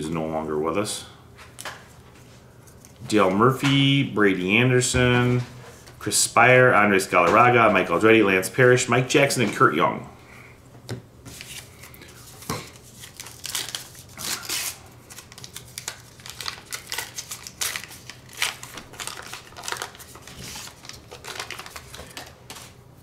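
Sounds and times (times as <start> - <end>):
foil wrapper crinkling and tearing: 12.3 - 22.7.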